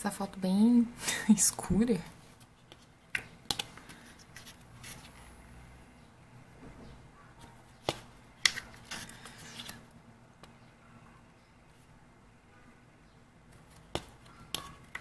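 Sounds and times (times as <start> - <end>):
soft paper rustling: 2.1 - 5.4, 7.4 - 9.9
pages being turned: 2.2 - 5.2, 7.9 - 9.9.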